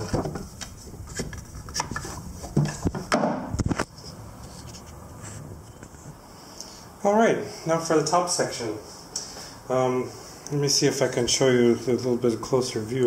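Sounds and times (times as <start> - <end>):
camera handling rumble: 0.0 - 4.9.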